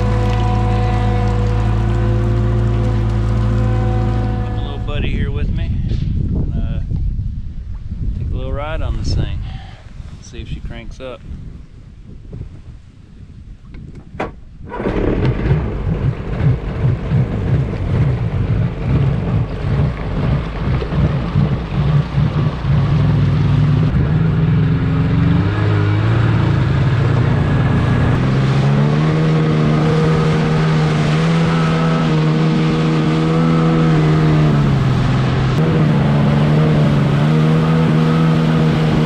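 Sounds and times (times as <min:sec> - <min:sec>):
jet ski engine running: 0:00.0 - 0:05.6, 0:14.7 - 0:39.0.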